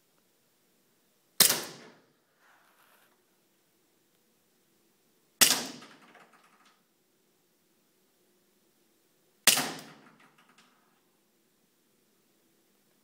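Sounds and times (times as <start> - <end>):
air pistol firing: 1.4 - 2.0, 5.4 - 6.0, 9.5 - 10.1.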